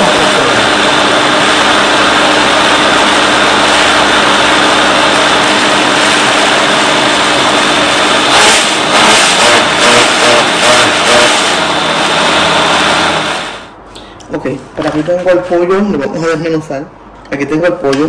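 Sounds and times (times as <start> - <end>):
blender running: 0.0 - 13.8.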